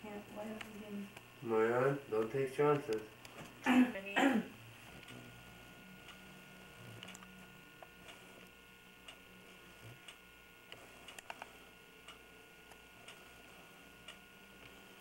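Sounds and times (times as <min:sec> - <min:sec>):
low steady hum: 0:00.0 - 0:15.0
faint regular tick: 0:10.0 - 0:13.2.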